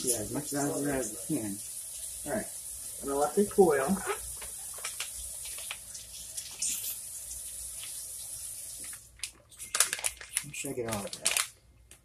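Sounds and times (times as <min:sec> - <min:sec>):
steady high hiss: 0:00.0 - 0:09.0
foil pouch crinkling: 0:04.1 - 0:06.0, 0:08.8 - 0:12.0.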